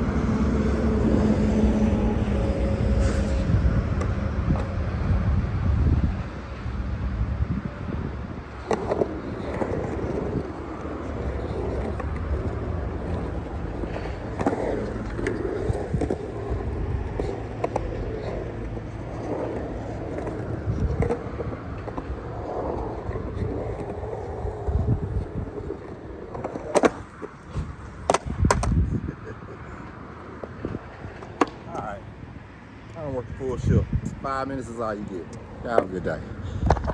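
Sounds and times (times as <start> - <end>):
skateboard wheels rolling on concrete: 0.0 - 36.9
skateboard clacks: 8.3 - 29.1, 29.8 - 31.8.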